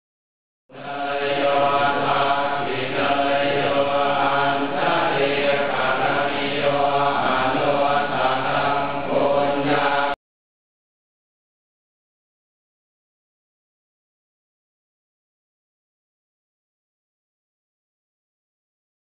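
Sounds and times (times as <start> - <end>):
monks chanting in unison: 0.7 - 10.2.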